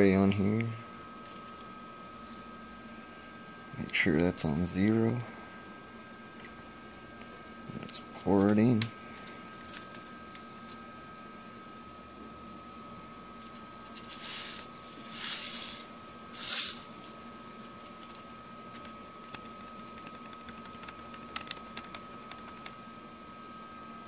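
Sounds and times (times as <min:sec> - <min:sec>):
paper rustling: 0:13.4 - 0:17.1.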